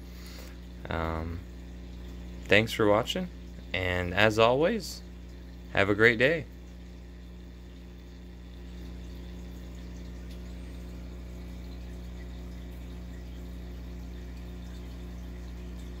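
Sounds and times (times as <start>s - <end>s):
aquarium pump humming: 0.0s - 16.0s
water trickling: 0.0s - 16.0s.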